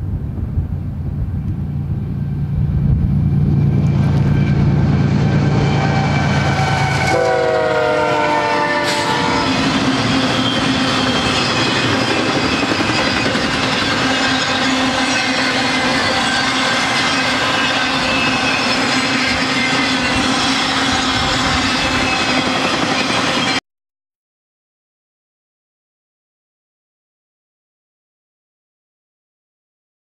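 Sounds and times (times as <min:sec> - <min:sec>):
freight cars rumbling and clattering: 0:00.0 - 0:07.1
locomotive air horn: 0:04.0 - 0:11.1.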